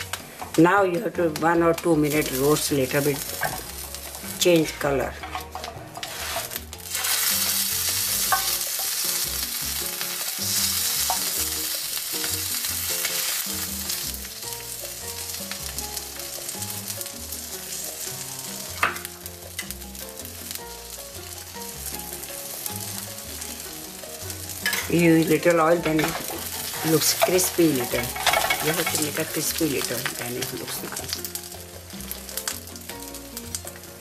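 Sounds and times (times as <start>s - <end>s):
tortilla sizzling in oil: 0.0s - 34.0s.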